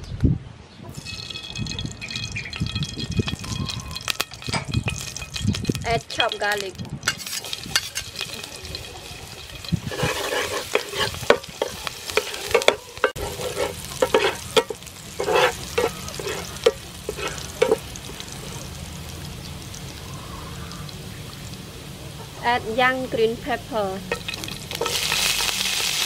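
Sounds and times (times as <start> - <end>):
garlic sizzling in oil: 0.9 - 26.0
metal spatula scraping pan: 3.3 - 17.9, 24.1 - 26.0.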